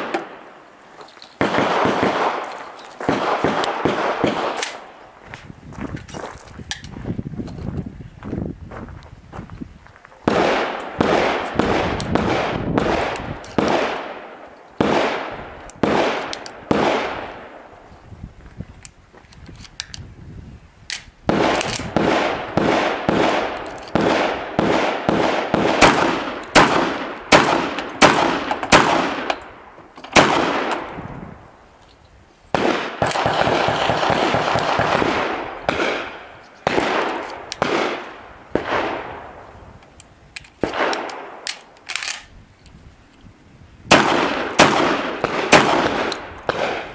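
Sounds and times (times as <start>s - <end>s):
gunshots: 1.4s - 4.9s, 10.2s - 17.6s, 21.3s - 29.4s, 30.1s - 31.0s, 32.5s - 39.4s, 40.6s - 41.4s, 43.9s - 46.9s
rapid gunfire: 32.6s - 36.1s.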